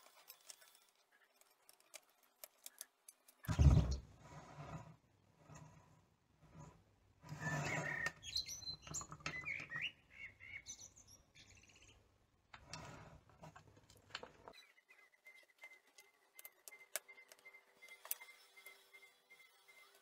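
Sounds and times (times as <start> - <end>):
birds chirping: 7.4 - 12.2, 14.5 - 20.0.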